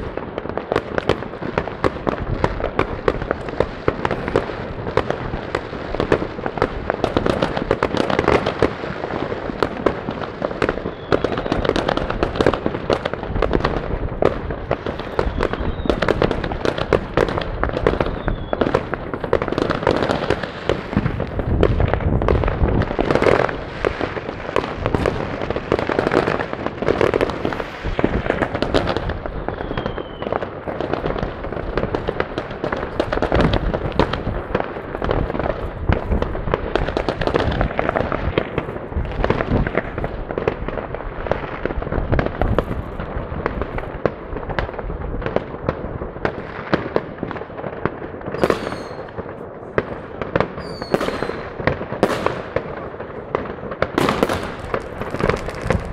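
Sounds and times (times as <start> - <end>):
fireworks crackling and banging: 0.0 - 55.9
firework whistles: 10.6 - 11.7, 14.9 - 16.4, 17.8 - 18.9, 27.4 - 30.4, 48.3 - 49.2, 50.6 - 52.3.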